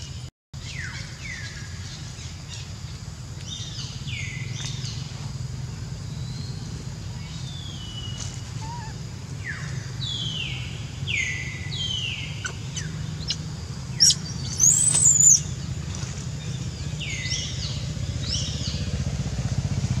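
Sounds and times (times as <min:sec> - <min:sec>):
infant monkey squealing: 0:08.6 - 0:09.0, 0:14.0 - 0:15.4.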